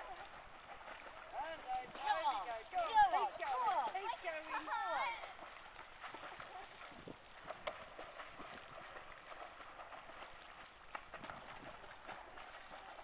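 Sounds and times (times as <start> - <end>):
swimmer splashing in pool: 0.0 - 13.0.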